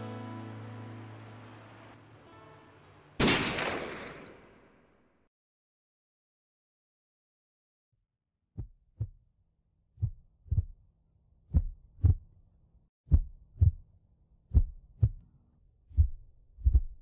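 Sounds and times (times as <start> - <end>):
heartbeat thumps: 8.6 - 9.2, 10.0 - 10.8, 11.5 - 12.3, 13.1 - 13.8, 14.5 - 15.2, 15.9 - 17.0.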